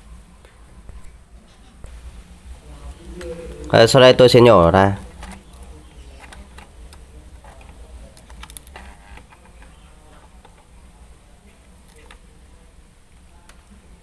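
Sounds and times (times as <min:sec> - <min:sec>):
low hum: 0:01.8 - 0:08.2.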